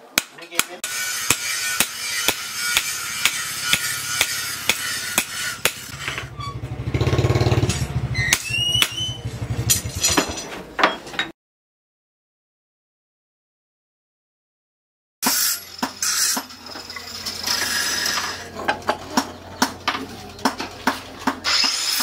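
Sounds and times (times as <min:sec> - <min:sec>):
hammer striking steel on anvil: 0:00.2 - 0:06.3
grinder-like whine: 0:15.2 - 0:20.4.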